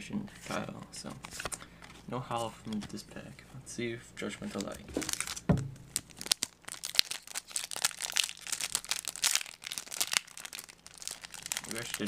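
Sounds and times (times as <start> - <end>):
foil wrapper crinkling and tearing: 4.6 - 12.0.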